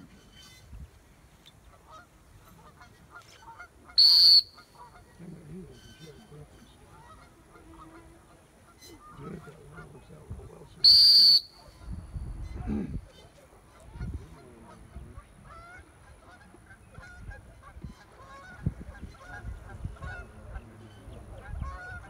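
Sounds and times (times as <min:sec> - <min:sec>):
geese honking and clucking: 0:01.6 - 0:22.0
loud whistle blasts: 0:04.0 - 0:04.6, 0:10.8 - 0:11.8.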